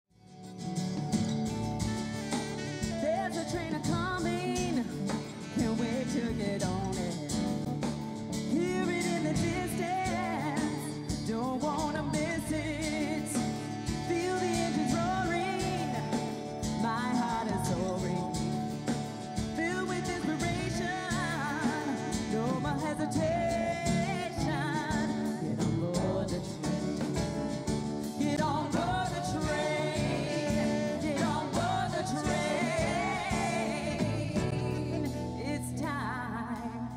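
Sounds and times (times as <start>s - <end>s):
acoustic guitar: 0.1s - 36.9s
drum kit: 0.1s - 36.9s
woman singing with vibrato: 2.8s - 7.6s, 8.5s - 36.9s.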